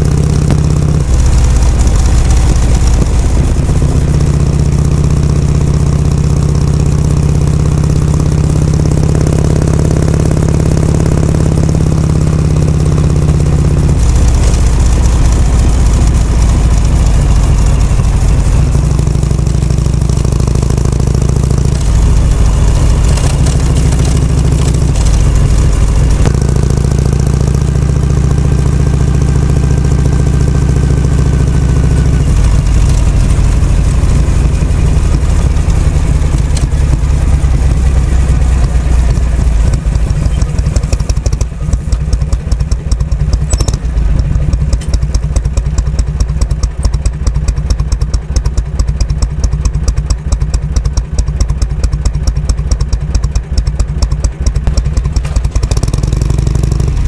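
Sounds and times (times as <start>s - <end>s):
motorcycle engine running and idling: 0.0s - 57.0s.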